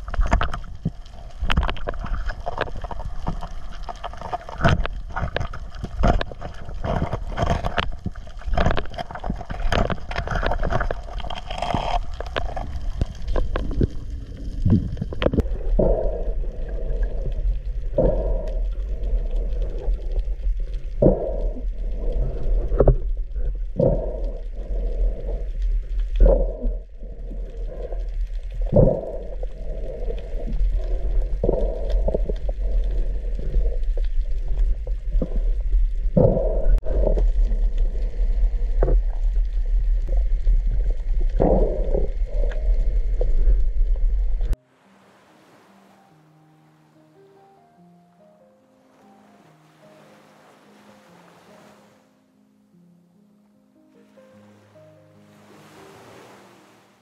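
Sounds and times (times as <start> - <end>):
sharp underwater clicks and knocks: 0.0 - 15.5
low underwater rumble: 0.0 - 44.6.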